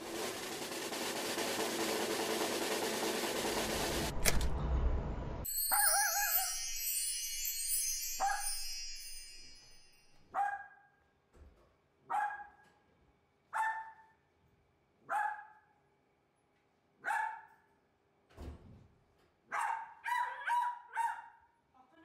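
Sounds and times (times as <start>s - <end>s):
dog barking: 10.3s - 11.0s, 12.1s - 12.6s, 13.5s - 14.2s, 15.0s - 15.7s, 17.0s - 17.7s, 19.5s - 21.6s.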